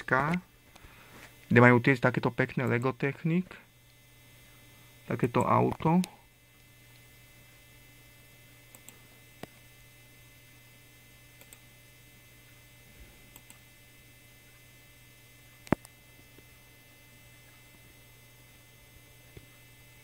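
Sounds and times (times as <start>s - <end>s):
low electrical hum: 0.0s - 20.0s
computer mouse clicks: 8.7s - 9.6s, 11.4s - 11.6s, 13.3s - 13.6s, 15.6s - 16.5s.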